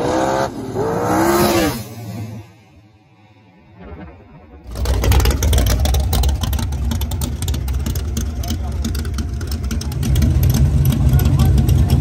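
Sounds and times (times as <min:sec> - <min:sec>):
race car idling: 0:04.6 - 0:12.0.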